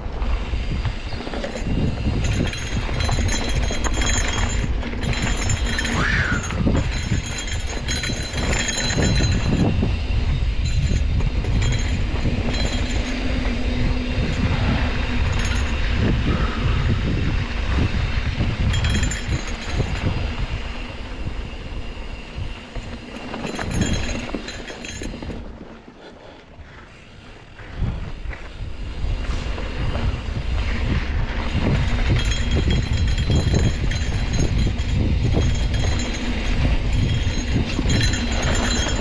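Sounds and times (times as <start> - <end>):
tyres rumbling on dirt: 0.0 - 26.8
bike chain and frame clattering: 0.0 - 39.0.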